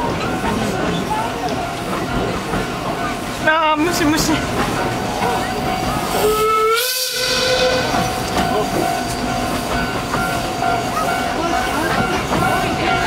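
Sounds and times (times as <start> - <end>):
train wheels rattling on rails: 0.0 - 13.0
steam hissing: 3.2 - 13.0
steam whistle: 6.1 - 8.1.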